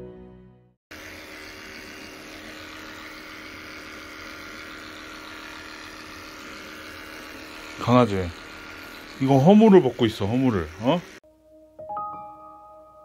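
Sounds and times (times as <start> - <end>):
soft music: 0.0 - 0.8, 9.7 - 13.0
electric clippers humming: 0.9 - 11.2.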